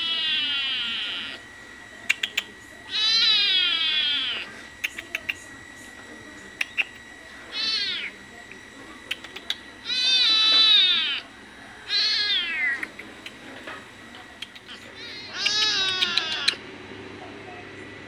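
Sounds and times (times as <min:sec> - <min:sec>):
kitten meowing: 0:00.0 - 0:01.4, 0:02.9 - 0:04.5, 0:07.5 - 0:08.1, 0:09.8 - 0:11.2, 0:11.9 - 0:12.8, 0:14.9 - 0:16.6.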